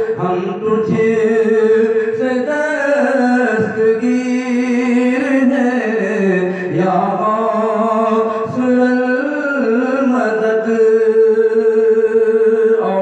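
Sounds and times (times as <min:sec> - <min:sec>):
man singing devotional hymn: 0:00.0 - 0:13.0.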